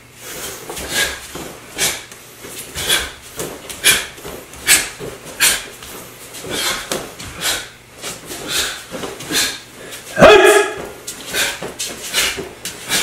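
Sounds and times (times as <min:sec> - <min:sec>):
short sharp breaths: 0:06.4 - 0:10.1
person shouting: 0:10.2 - 0:10.9.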